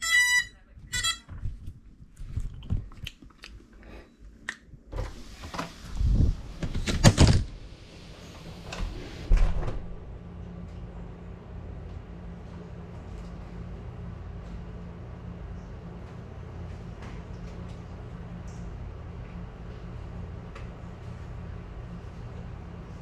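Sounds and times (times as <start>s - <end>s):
electronic beep from quadcopter: 0.0s - 1.2s
steady low hum: 0.0s - 23.0s.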